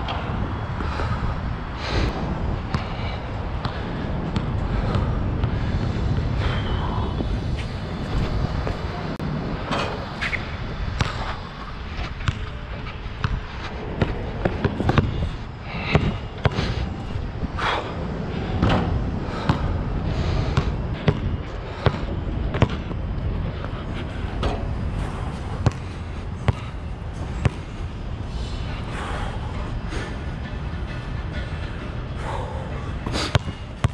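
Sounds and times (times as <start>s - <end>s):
steady low rumble: 0.0s - 33.9s
basketball bouncing on court: 12.2s - 12.6s, 20.6s - 23.0s, 25.6s - 26.8s, 27.4s - 27.7s, 33.3s - 33.9s.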